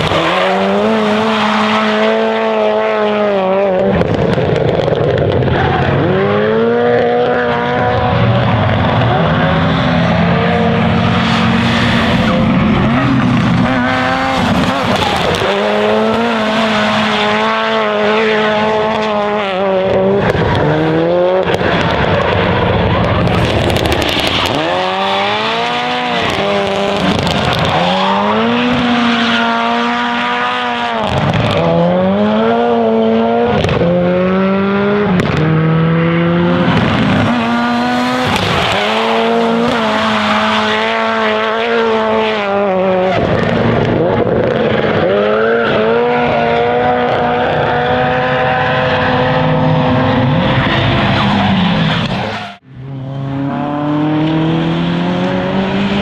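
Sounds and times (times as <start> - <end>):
car engine revving hard: 0.0 - 56.0
tyres squealing and skidding: 8.5 - 18.8, 20.2 - 31.6, 36.7 - 41.8, 44.6 - 52.6.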